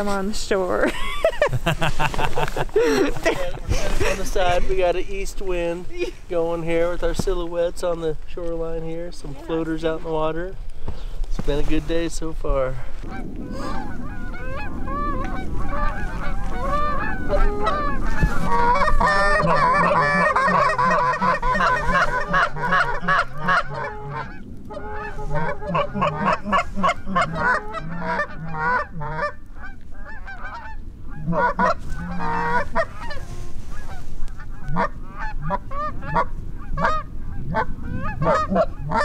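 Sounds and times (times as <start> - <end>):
geese honking in flight: 13.0 - 39.0.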